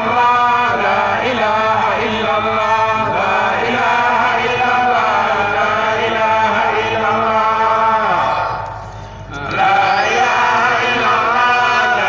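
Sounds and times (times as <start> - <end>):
person chanting: 0.0 - 12.0.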